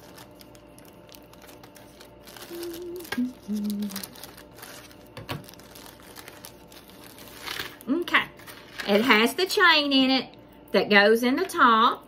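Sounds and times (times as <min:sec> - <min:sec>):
plastic packaging crinkling: 0:00.0 - 0:09.4
person humming: 0:02.2 - 0:04.3.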